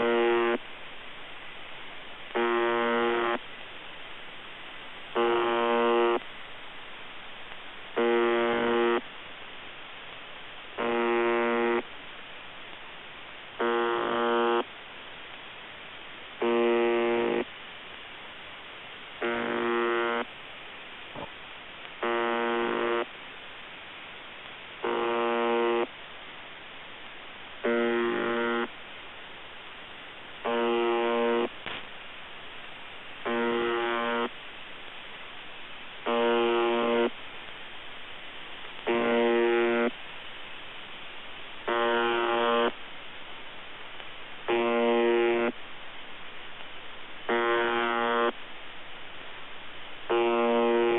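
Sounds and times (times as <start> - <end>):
broken radio buzz: 0.0 - 0.6, 2.3 - 3.5, 5.1 - 6.3, 8.0 - 9.1, 10.8 - 11.9, 13.6 - 14.7, 16.4 - 17.5, 19.2 - 20.3, 21.1 - 23.1, 24.8 - 26.0, 27.6 - 28.7, 30.4 - 31.9, 33.2 - 34.4, 36.0 - 37.2, 38.7 - 40.0, 41.6 - 42.8, 44.4 - 45.6, 47.2 - 48.4, 50.0 - 50.9
radio receiver hiss: 0.0 - 50.9.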